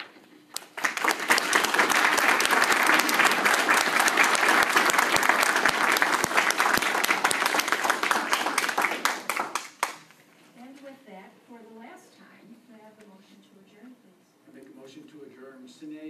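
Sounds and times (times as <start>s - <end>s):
crowd applauding: 0.0s - 10.1s.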